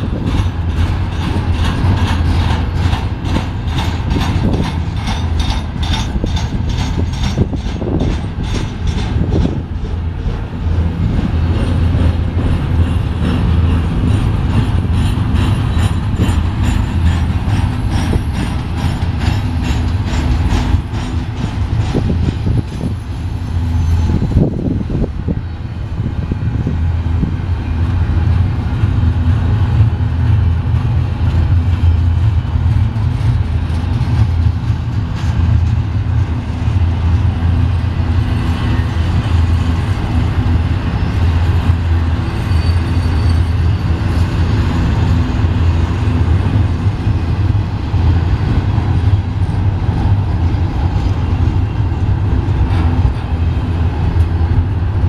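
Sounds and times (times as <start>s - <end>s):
train clanks: 0.0s - 55.0s
train wheels rumbling on rails: 0.0s - 55.0s.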